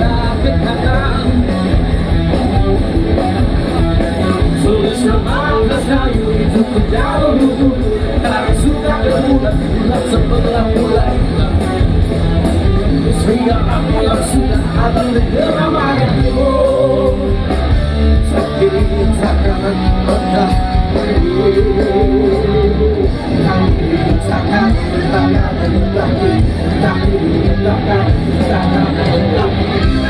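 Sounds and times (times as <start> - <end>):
singer's vocals: 0.0 - 1.6, 4.1 - 30.0
bass guitar: 0.0 - 30.0
drums with steady cymbal beat: 0.0 - 30.0
electric guitars: 0.0 - 30.0.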